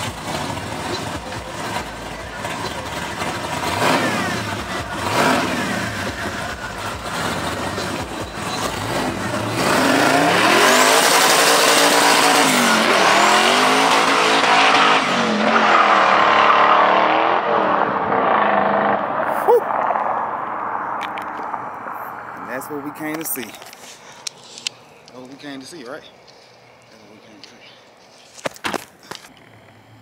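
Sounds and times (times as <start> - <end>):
car engine revving hard: 0.0 - 19.4.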